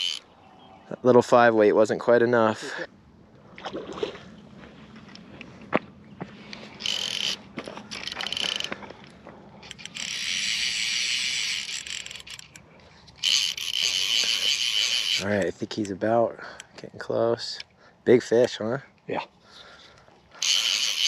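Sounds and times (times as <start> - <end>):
fly reel buzzing: 0.0 - 0.2, 6.8 - 8.7, 9.6 - 12.5, 13.2 - 15.3, 20.4 - 21.0.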